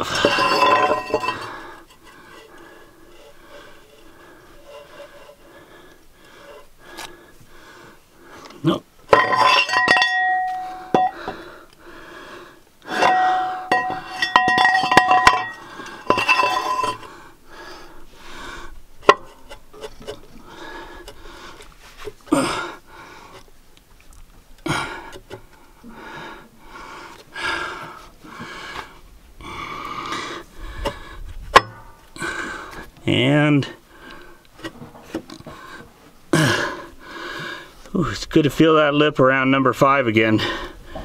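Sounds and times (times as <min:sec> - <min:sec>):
metal cylinder liner clinking: 0:00.1 - 0:01.5, 0:09.1 - 0:11.3, 0:12.9 - 0:17.1, 0:19.0 - 0:19.9.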